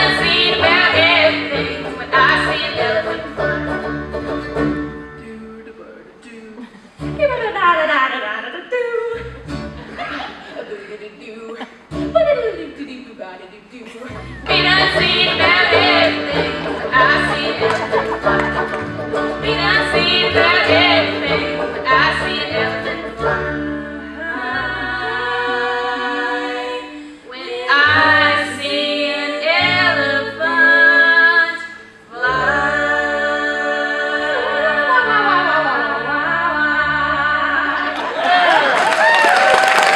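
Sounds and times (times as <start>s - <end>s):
women singing in harmony: 0.0s - 3.7s, 13.9s - 38.4s
mandolin guitar banjo and bass: 0.0s - 8.4s, 9.1s - 11.0s, 11.7s - 13.1s, 13.9s - 38.6s.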